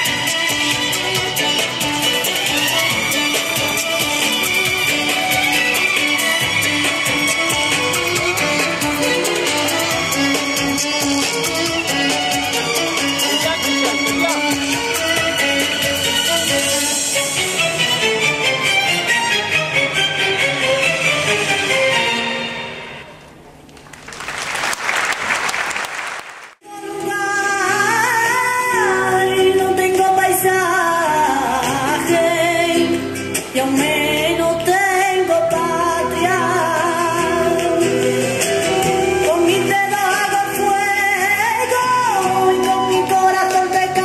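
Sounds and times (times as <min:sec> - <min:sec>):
crowd applause: 0:23.8 - 0:26.6.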